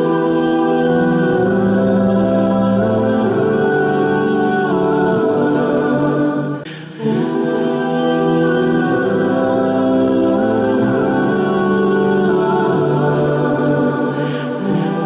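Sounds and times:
choir-like sung music: 0.0 - 15.0.

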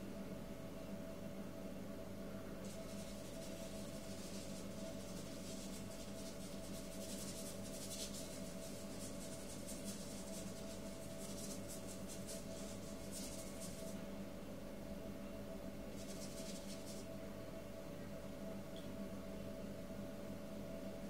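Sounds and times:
paintbrush scrubbing on paper: 2.7 - 14.0, 15.9 - 17.1.

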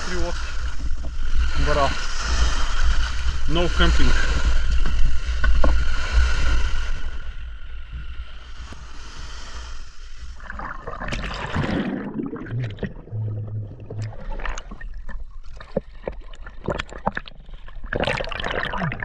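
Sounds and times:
wind rumbling on microphone: 0.0 - 15.9
water lapping around boat: 9.2 - 19.0.

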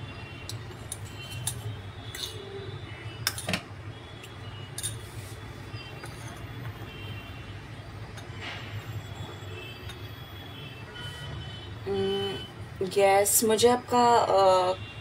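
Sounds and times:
spoon clinking on ceramic bowl: 0.9 - 2.4, 4.8 - 5.0.

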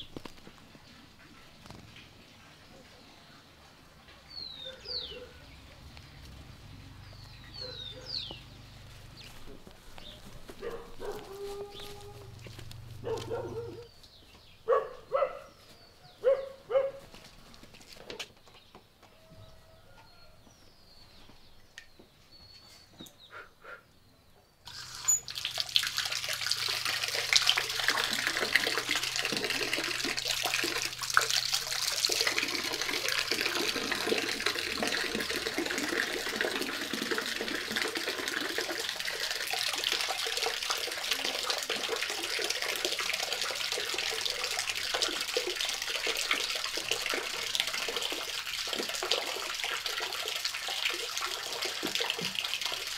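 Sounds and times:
tap water splashing into basin: 24.7 - 52.9.

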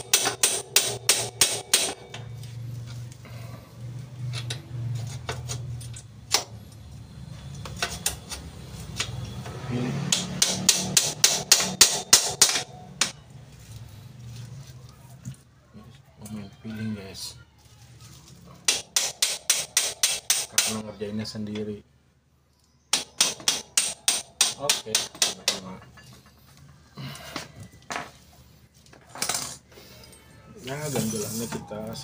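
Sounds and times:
hammer tapping metal: 0.0 - 2.2, 10.0 - 13.2, 18.7 - 20.8, 22.9 - 26.2.

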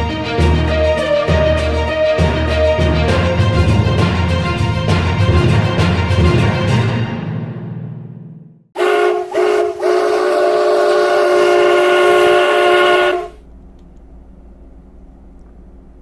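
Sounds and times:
music: 0.0 - 8.7
train horn blasts: 8.8 - 13.5
low steady rumble: 12.6 - 16.0.

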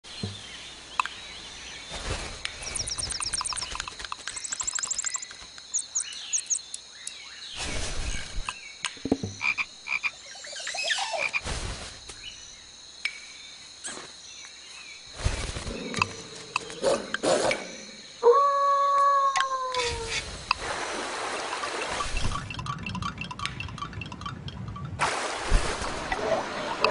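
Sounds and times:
crackles and clicks: 2.0 - 7.2, 22.0 - 26.9
rapid rattling trills: 2.7 - 5.4, 22.4 - 25.0.

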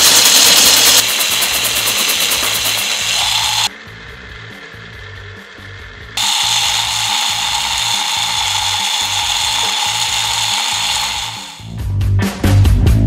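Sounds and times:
foam balls rattling in plastic cup: 0.0 - 3.7, 6.2 - 11.6
small motor whirring: 0.0 - 3.7, 6.2 - 11.8.

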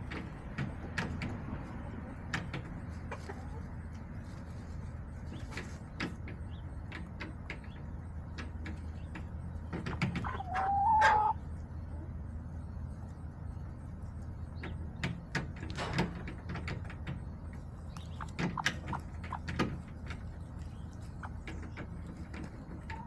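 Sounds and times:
hens pecking and scratching: 0.0 - 23.0
steady low hum: 11.2 - 23.0.

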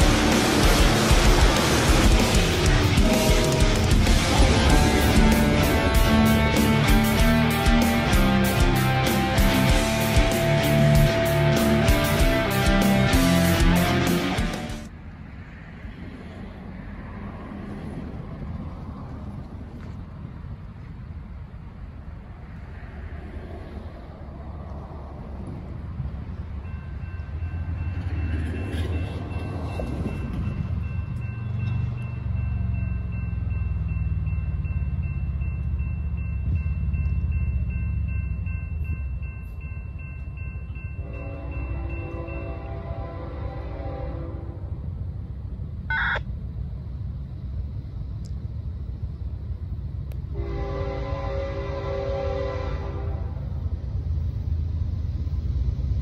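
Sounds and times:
low rumble: 0.0 - 12.7
crossing warning bell ringing: 0.0 - 14.4, 26.3 - 44.0
locomotive air horn chord: 0.0 - 14.8, 41.0 - 44.7, 50.3 - 53.5
diesel locomotive rumble: 0.0 - 56.0.

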